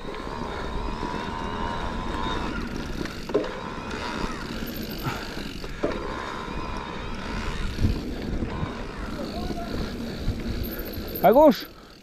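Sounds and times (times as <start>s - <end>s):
tyre and wind rumble: 0.0s - 11.7s.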